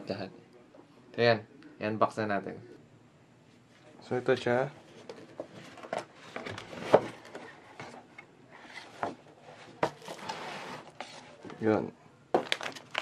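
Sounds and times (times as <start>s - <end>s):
paper rustling: 8.6s - 11.6s
cardboard box knocks and scrapes: 9.8s - 10.9s.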